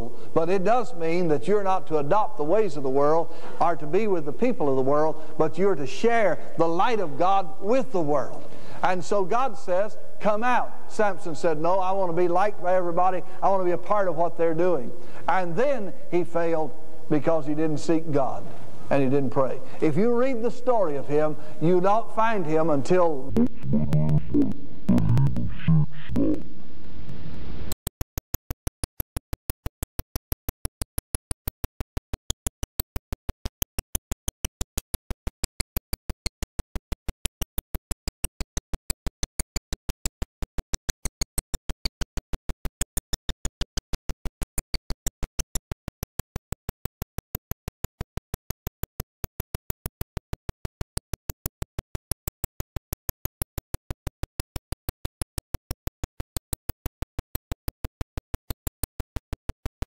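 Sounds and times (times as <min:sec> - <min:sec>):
rapid digital clicking: 0:27.7 - 0:59.9.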